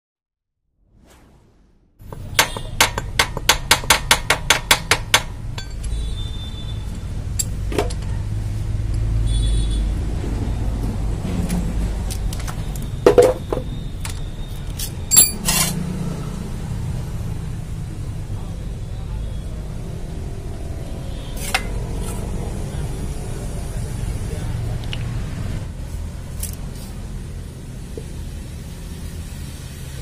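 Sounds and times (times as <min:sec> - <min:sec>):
hand tools clinking on metal: 0:05.6 - 0:06.0, 0:14.8 - 0:15.8.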